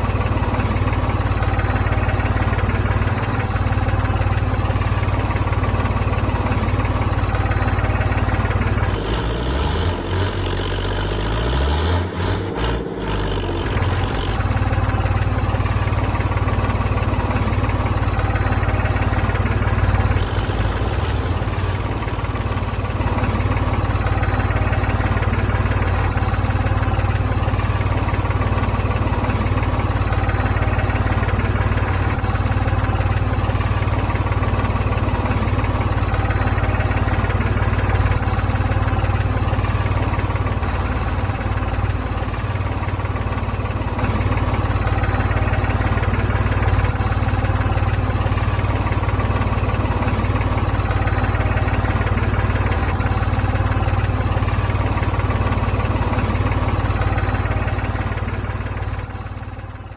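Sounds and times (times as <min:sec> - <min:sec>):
engine droning: 0:00.0 - 0:59.9.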